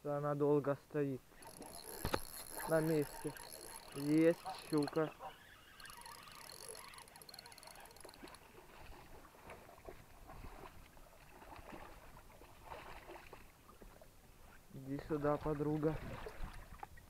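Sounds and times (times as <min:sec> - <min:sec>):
fishing reel whirring and ticking: 0:01.3 - 0:08.9.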